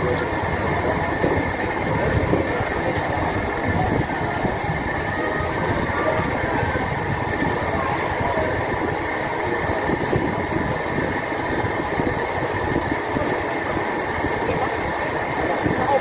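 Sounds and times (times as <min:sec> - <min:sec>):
restaurant crowd din: 0:00.0 - 0:16.0.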